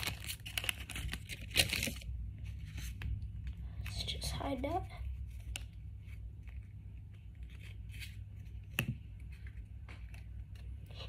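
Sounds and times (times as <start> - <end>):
foil wrapper crinkling: 0.0 - 2.1.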